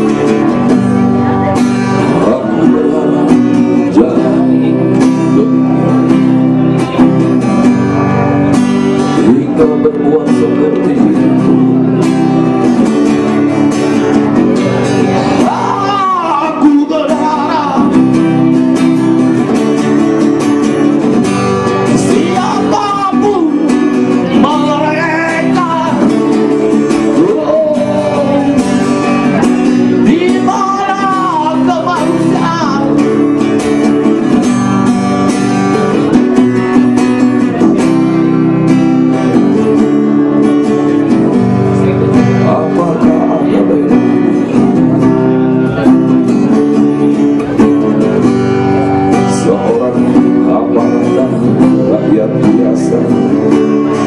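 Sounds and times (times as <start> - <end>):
person singing: 0.0 - 7.3, 9.0 - 13.4, 14.5 - 18.6, 21.8 - 33.9, 41.8 - 47.9, 48.6 - 54.0
acoustic guitar strumming: 0.0 - 54.0.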